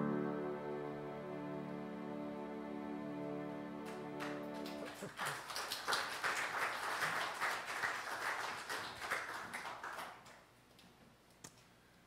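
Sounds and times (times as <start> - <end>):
piano chord: 0.0 - 4.8
congregation applauding: 3.8 - 10.5.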